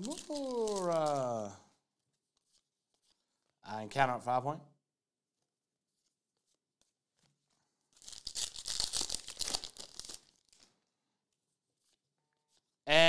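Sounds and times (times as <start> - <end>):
packaging crinkling: 0.0 - 1.6, 7.2 - 10.9.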